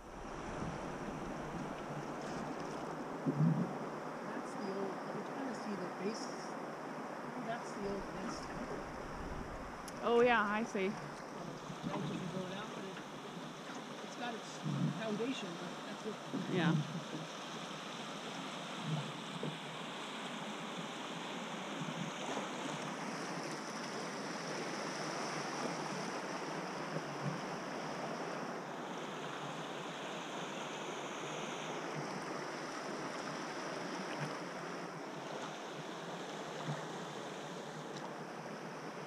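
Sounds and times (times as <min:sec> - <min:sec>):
wind buffeting microphone: 0:00.0 - 0:04.0, 0:07.5 - 0:12.9
river current rushing: 0:00.0 - 0:39.0.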